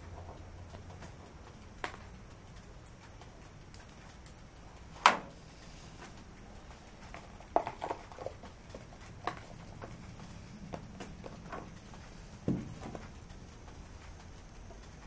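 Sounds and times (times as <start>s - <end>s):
cardboard box taps and rattles: 12.5s - 13.0s.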